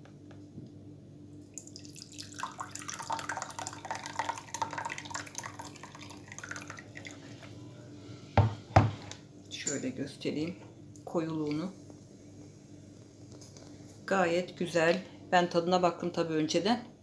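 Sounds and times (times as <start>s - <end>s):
tea pouring into glass cup: 1.5s - 7.7s.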